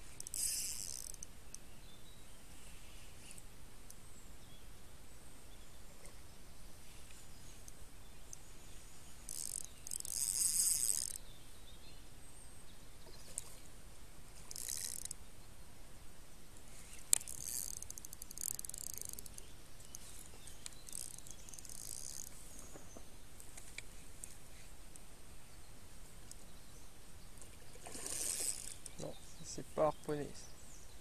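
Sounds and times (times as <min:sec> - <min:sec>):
insect buzzing: 0:00.0 - 0:01.3, 0:08.6 - 0:11.2, 0:14.4 - 0:15.2, 0:16.9 - 0:22.7.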